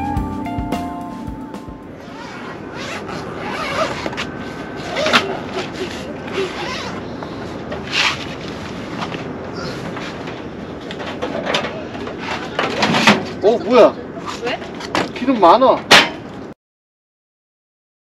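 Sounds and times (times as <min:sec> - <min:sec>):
rustling and raspy scrapes: 0:02.1 - 0:13.4.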